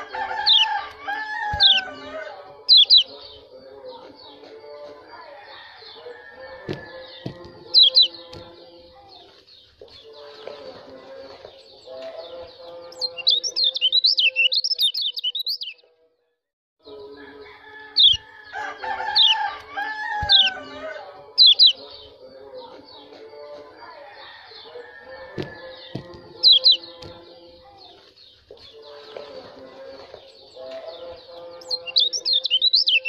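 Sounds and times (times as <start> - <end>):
bird high chip calls: 0.0 - 3.4, 5.8 - 8.3, 12.8 - 15.8, 17.9 - 18.3, 19.0 - 22.2, 24.6 - 27.0, 31.4 - 33.0
bird rapid high warbling: 0.0 - 3.4, 6.4 - 8.3, 12.9 - 15.8, 18.0 - 18.3, 19.0 - 22.1, 25.5 - 27.0, 31.6 - 33.0.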